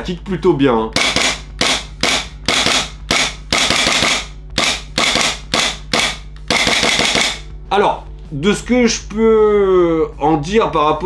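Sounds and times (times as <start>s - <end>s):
airsoft pistol shots: 1.0s - 7.4s.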